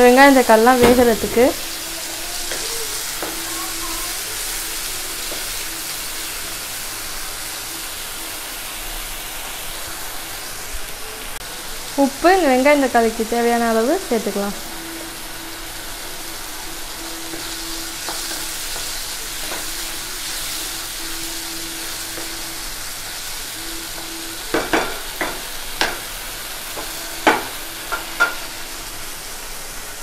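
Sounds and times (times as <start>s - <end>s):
food sizzling in a pan: 0.0s - 30.0s
spatula knocking on pan: 24.5s - 26.1s, 26.7s - 28.4s.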